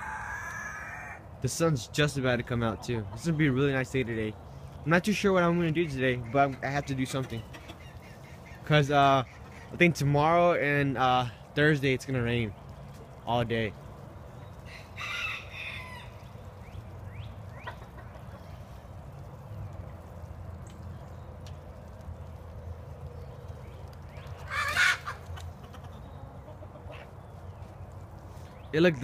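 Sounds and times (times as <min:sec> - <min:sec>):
rooster crowing: 0:00.0 - 0:01.2, 0:14.7 - 0:16.2
chickens clucking: 0:02.1 - 0:19.9, 0:21.4 - 0:27.7
loud bird call: 0:24.3 - 0:26.0.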